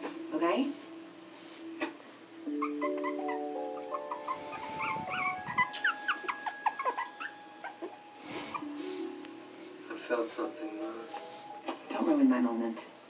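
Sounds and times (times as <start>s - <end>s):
soft background music: 0.0s - 13.0s
puppies whimpering and squeaking: 2.4s - 9.0s.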